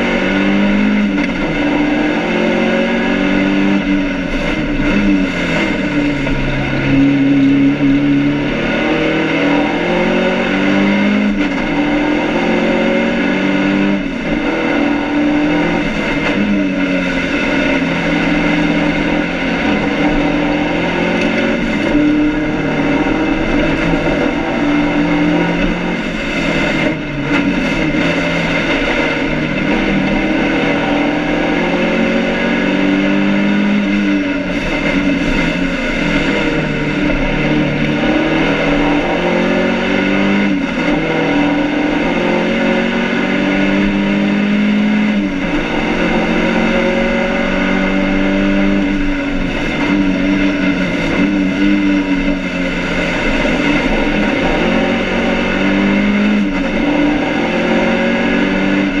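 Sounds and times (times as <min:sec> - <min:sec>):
racing car engine revving: 0:00.0 - 0:59.0.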